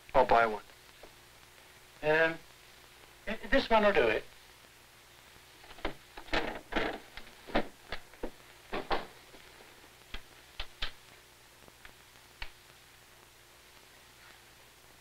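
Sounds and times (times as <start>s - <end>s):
faint steady hum: 0.0s - 15.0s
sharp clicks and knocks: 5.7s - 9.2s, 10.1s - 11.0s.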